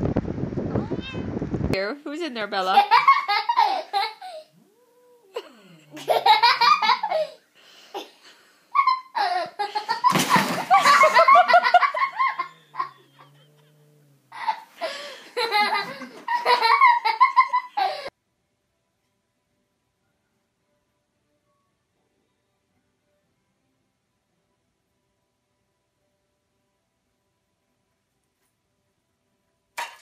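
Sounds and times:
people laughing hard: 5.9 - 7.3, 8.8 - 13.1, 14.4 - 18.1.

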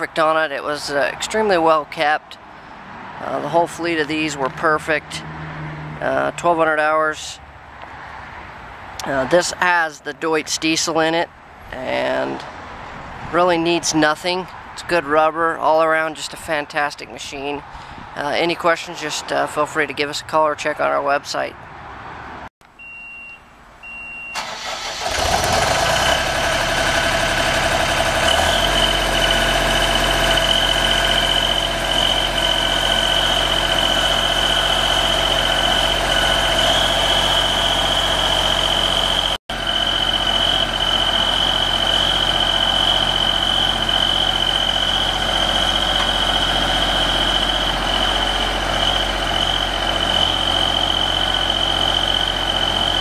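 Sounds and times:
diesel engine running: 0.0 - 7.7, 24.4 - 53.0
short beeps: 22.7 - 24.4
high-pitched whine: 28.2 - 53.0.

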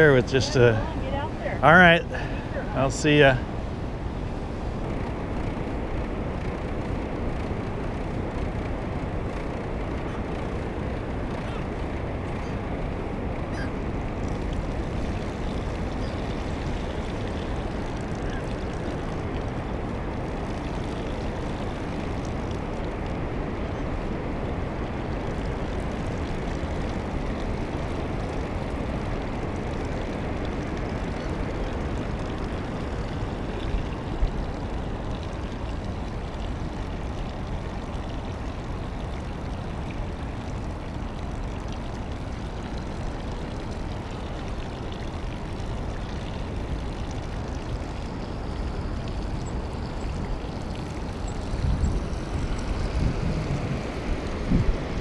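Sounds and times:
wind on microphone: 47.8 - 55.0.

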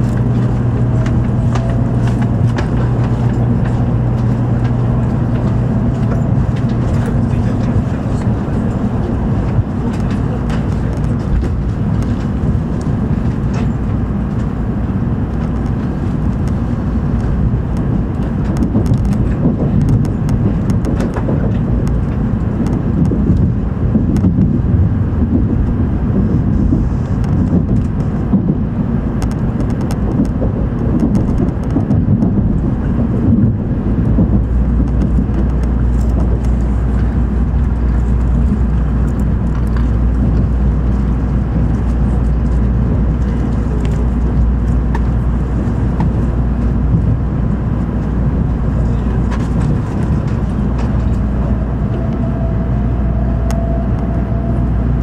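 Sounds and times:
deep steady hum: 0.0 - 55.0
train cabin rumble: 0.0 - 55.0.

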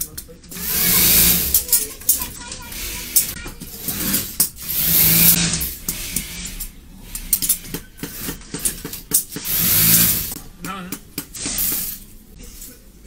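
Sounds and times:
machine hiss: 0.5 - 10.4, 11.4 - 12.3
motor hum: 0.5 - 10.4.

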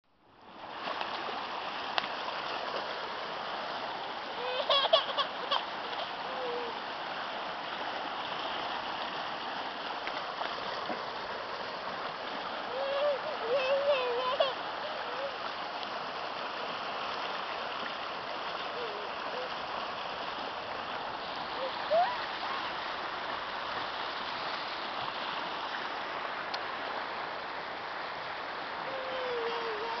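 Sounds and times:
stream running over rocks: 0.2 - 30.0
child calling out: 4.4 - 5.6, 6.2 - 6.8, 12.7 - 15.4, 21.6 - 22.4, 28.8 - 30.0.

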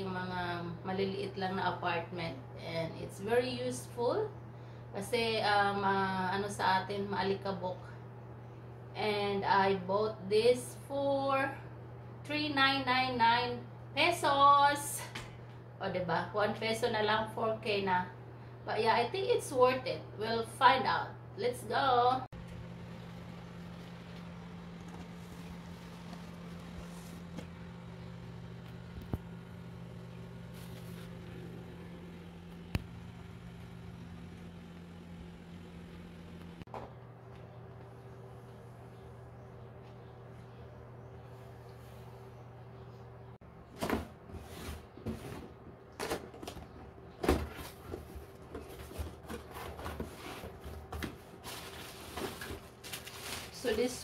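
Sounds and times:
steady low hum: 0.0 - 54.0
cardboard scraping: 24.6 - 27.6, 30.4 - 31.6, 47.3 - 53.8.

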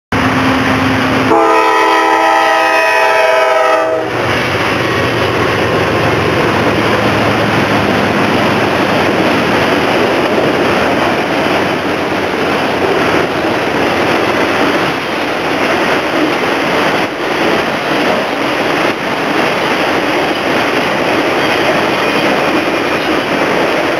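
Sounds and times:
freight train rumbling past: 0.1 - 23.9
locomotive air horn chord: 0.8 - 4.2.

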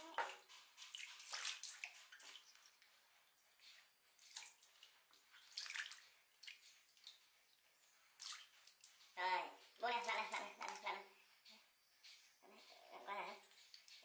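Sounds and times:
water splashing in plastic basin: 0.0 - 2.9, 4.1 - 7.3, 8.1 - 9.1.

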